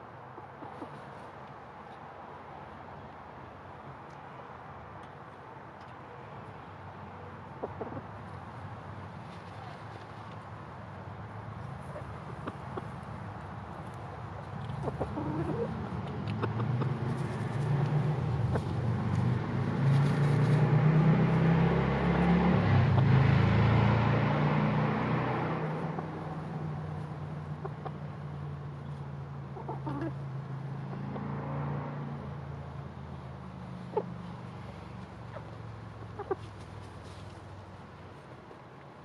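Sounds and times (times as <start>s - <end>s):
passing vehicle engine hum: 6.4s - 38.8s
chicken clucking softly: 14.6s - 16.9s.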